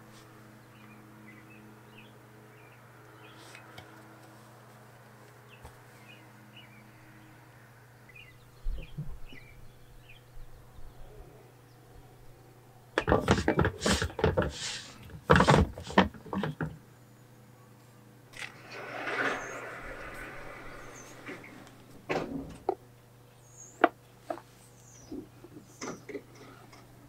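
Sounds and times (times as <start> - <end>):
small birds chirping: 0.6 - 3.8, 8.0 - 12.4, 23.2 - 26.6
hard plastic knocks and scraping: 13.0 - 16.8.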